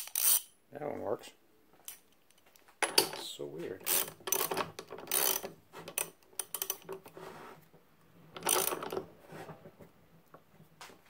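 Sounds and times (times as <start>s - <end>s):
socket ratchet clicking: 0.0s - 0.5s, 3.8s - 7.0s, 8.4s - 9.0s.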